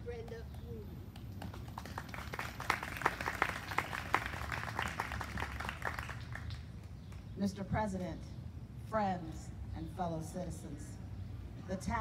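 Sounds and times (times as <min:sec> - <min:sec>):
audience clapping: 0:01.2 - 0:06.6.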